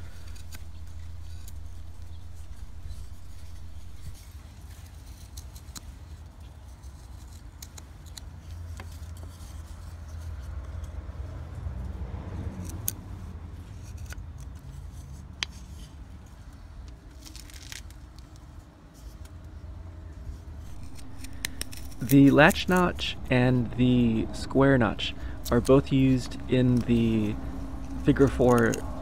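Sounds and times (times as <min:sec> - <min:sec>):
knife carving wooden stick: 0:00.0 - 0:04.2, 0:20.7 - 0:24.2
low rumble: 0:00.0 - 0:04.2, 0:20.6 - 0:29.0.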